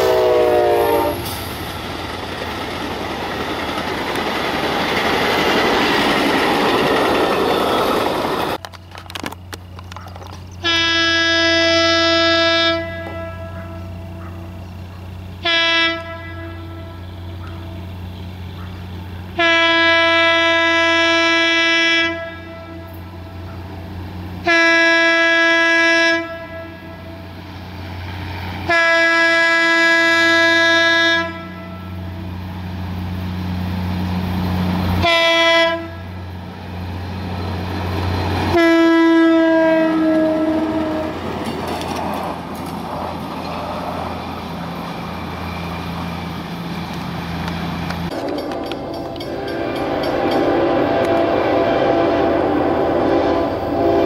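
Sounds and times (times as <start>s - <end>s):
train air horn blasts: 0.0s - 1.5s, 10.6s - 14.6s, 15.4s - 18.0s, 19.3s - 23.2s, 24.4s - 27.2s, 28.6s - 32.0s, 35.0s - 36.2s, 38.5s - 41.3s, 48.5s - 54.0s
train rumble and wheel clatter: 0.0s - 54.0s.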